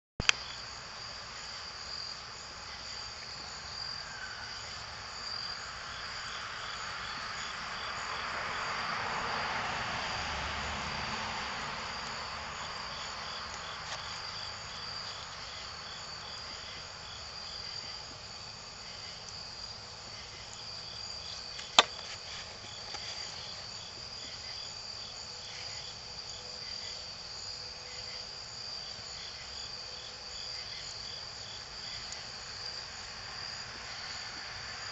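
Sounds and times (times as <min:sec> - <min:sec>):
crickets chirping: 0:00.2 - 0:34.9
sharp crack: 0:21.6 - 0:22.3.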